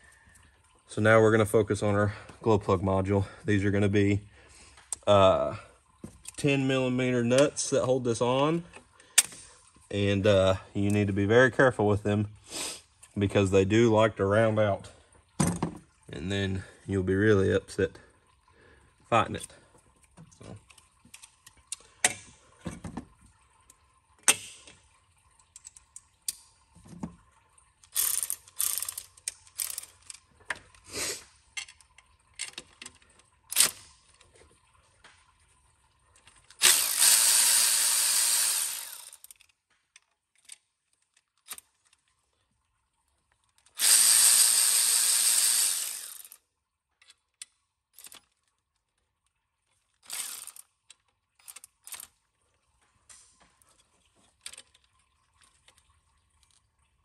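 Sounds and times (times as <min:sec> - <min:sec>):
hand ratchet clicking: 0:27.9 - 0:30.2, 0:36.6 - 0:39.4, 0:43.8 - 0:46.4, 0:50.0 - 0:50.6
power tool running: 0:36.6 - 0:39.3, 0:43.8 - 0:46.4, 0:50.1 - 0:50.6.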